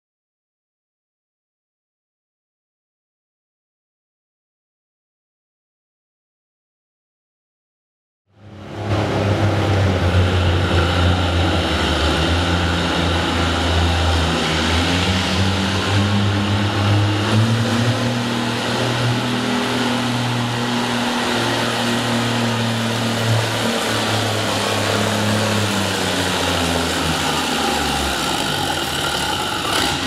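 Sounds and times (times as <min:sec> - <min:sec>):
tractor engine under load: 0:08.6 - 0:30.0.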